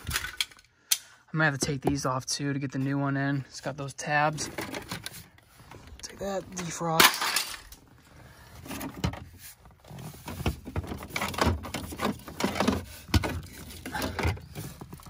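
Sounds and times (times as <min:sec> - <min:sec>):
plastic pieces clicking and rattling: 0:00.0 - 0:00.7, 0:06.6 - 0:07.8.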